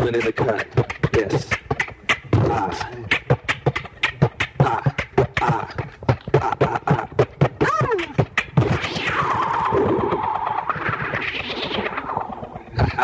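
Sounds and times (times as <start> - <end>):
beatboxing clicks and snares: 0.0 - 13.0
hiss sweeping in pitch: 7.8 - 12.6.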